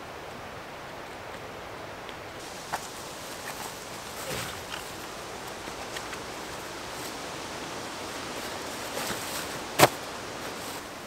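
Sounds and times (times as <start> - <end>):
woodland ambience hiss: 0.0 - 11.0
fabric rustling: 2.4 - 11.0.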